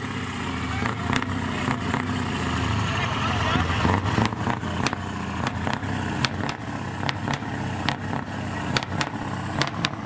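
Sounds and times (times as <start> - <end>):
truck diesel engine running: 0.0 - 10.0
sharp clicks and crackles: 4.2 - 10.0.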